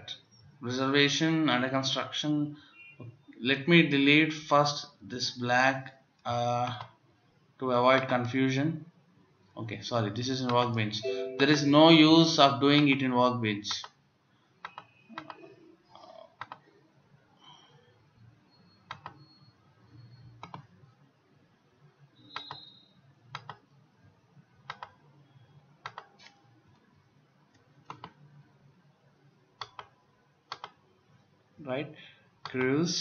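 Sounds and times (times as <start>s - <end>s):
faint low room hum: 0.0s - 33.0s
computer mouse clicks: 6.7s - 7.0s, 14.6s - 16.7s, 18.9s - 19.4s, 20.0s - 20.7s, 22.2s - 23.7s, 24.6s - 25.0s, 25.8s - 26.9s, 27.5s - 28.3s, 29.6s - 30.8s.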